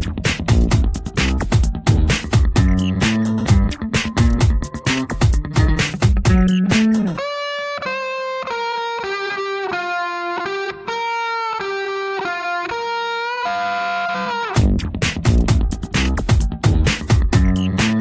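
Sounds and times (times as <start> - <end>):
drum beat: 0.0 - 7.2, 14.6 - 18.0
slow electric guitar melody: 2.4 - 14.6.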